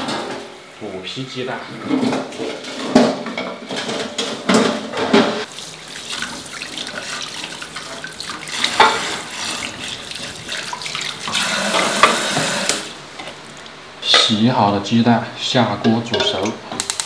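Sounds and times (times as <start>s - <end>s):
sponge scrubbing eggs: 5.5s - 12.6s
water splashing: 5.5s - 12.7s
tap water running into sink: 5.5s - 12.9s.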